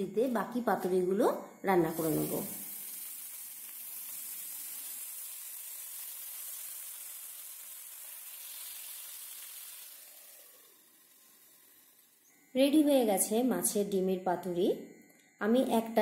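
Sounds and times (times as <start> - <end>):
oil sizzling in a frying pan: 1.8 - 12.8.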